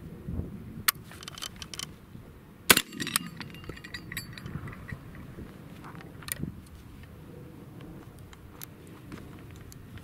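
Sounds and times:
shotgun shot: 2.7 - 3.3
light metallic clinks: 2.7 - 5.3.

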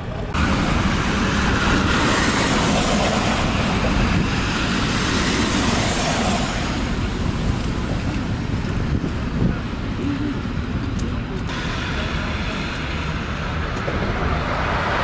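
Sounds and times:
road traffic roar: 0.0 - 15.0.

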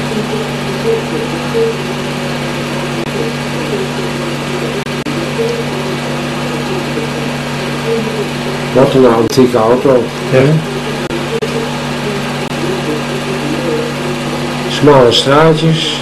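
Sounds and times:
constant hiss: 0.0 - 16.0
mechanical hum and whirr: 0.0 - 16.0.

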